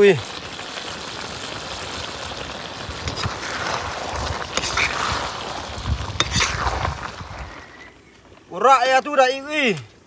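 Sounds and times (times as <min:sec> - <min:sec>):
curry sizzling in a wok: 0:00.0 - 0:08.2
metal spatula scraping a pan: 0:03.1 - 0:03.9, 0:04.5 - 0:05.4, 0:06.2 - 0:07.8.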